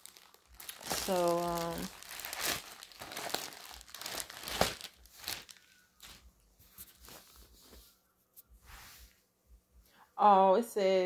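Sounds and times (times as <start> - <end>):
packaging crinkling and rustling: 0.0 - 7.5.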